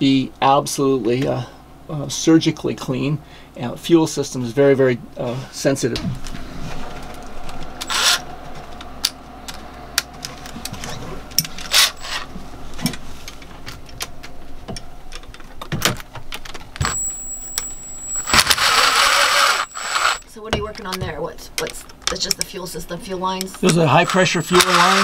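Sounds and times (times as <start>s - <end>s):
steady low hum: 16.3s - 20.5s.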